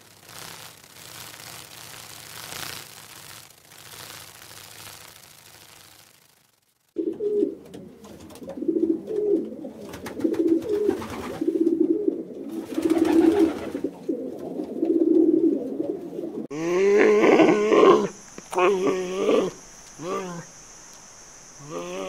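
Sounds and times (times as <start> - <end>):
pigeons cooing: 7.0 - 20.6.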